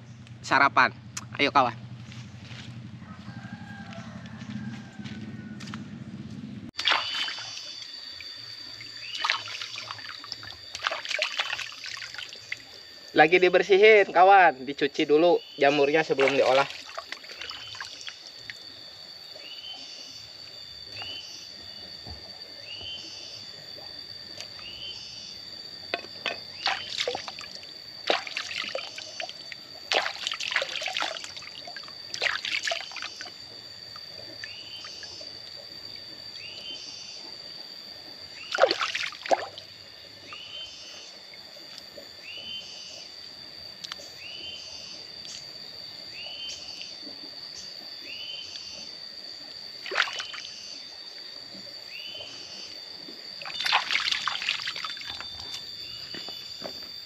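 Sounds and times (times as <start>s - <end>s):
steady high whine: 0.0s - 57.0s
water splashing and trickling: 6.7s - 12.8s, 15.7s - 18.6s, 26.2s - 35.7s, 38.5s - 40.3s, 49.8s - 50.6s, 53.3s - 55.7s.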